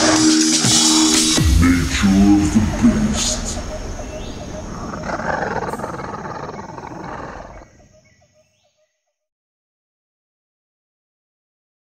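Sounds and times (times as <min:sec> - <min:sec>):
animal roar: 0:04.2 - 0:07.7.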